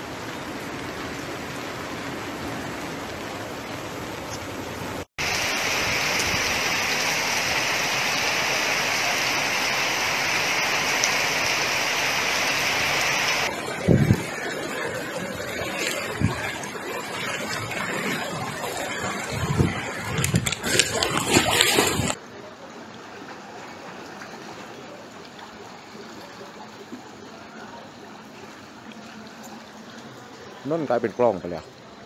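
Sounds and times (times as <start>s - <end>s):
floodwater rushing: 0.0s - 22.2s.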